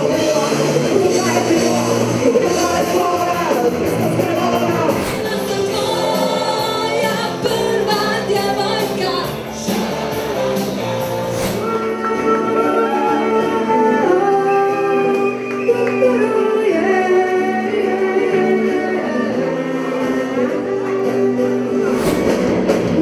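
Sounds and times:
live band music: 0:00.0 - 0:23.0
woman singing: 0:05.1 - 0:09.4.

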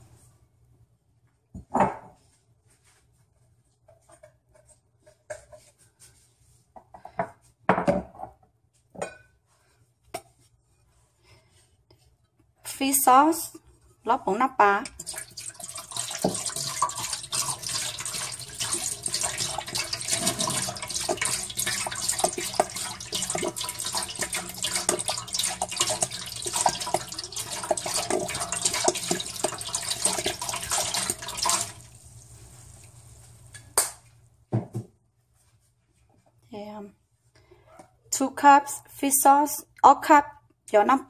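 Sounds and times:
liquid pouring into a pot: 0:14.8 - 0:33.2.

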